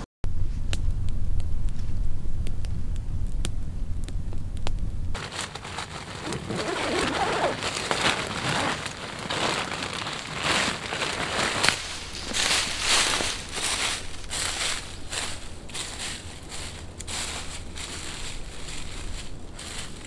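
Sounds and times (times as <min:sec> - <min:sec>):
low rumble: 0:00.2 - 0:20.0
campfire crackling and popping: 0:00.6 - 0:20.0
sleeping bag fabric rustling: 0:05.2 - 0:20.0.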